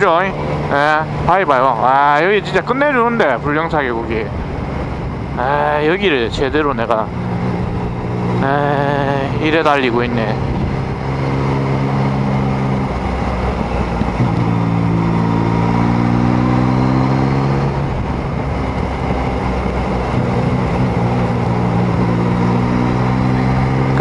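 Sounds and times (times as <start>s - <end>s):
motorcycle engine running: 0.0s - 24.0s
wet road noise: 0.0s - 24.0s
wind noise: 10.1s - 22.9s.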